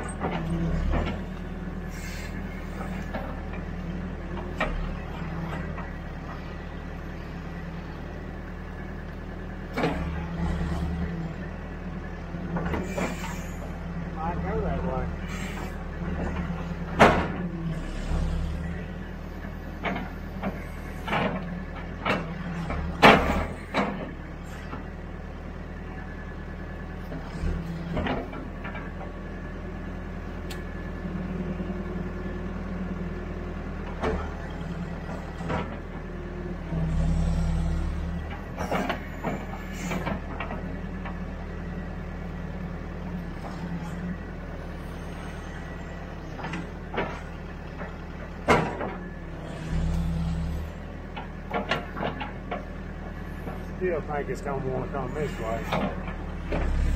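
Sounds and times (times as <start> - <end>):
diesel engine running: 0.0 - 56.9
metal clanks and knocks: 16.1 - 17.5, 19.7 - 24.1, 38.2 - 41.2, 46.4 - 49.1, 51.1 - 52.7.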